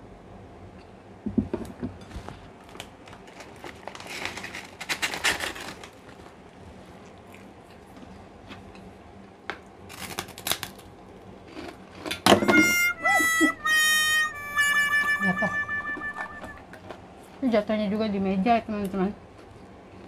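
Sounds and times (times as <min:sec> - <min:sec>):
crinkling rustle: 0:02.0 - 0:08.1
cracker crunching when bitten: 0:09.9 - 0:12.2.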